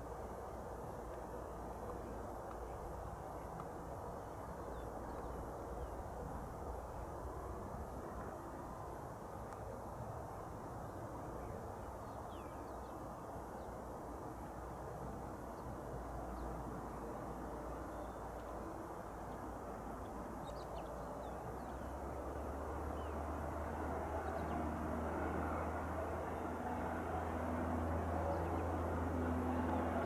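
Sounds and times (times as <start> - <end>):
low engine hum: 21.4 - 30.0.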